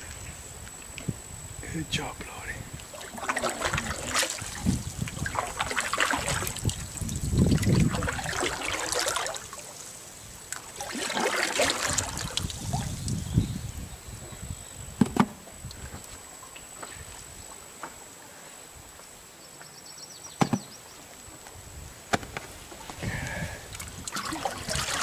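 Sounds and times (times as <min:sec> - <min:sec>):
water dripping off paddle: 0:02.8 - 0:09.7, 0:10.5 - 0:13.2, 0:23.2 - 0:25.0
paddle splashing in water: 0:02.8 - 0:13.2, 0:22.7 - 0:25.0
sharp knocks: 0:20.4 - 0:20.7.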